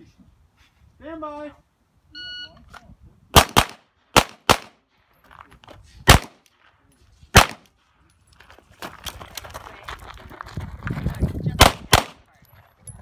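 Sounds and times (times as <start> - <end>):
pistol shots: 3.4 - 4.8, 6.1 - 6.4, 7.4 - 7.7, 11.6 - 12.2.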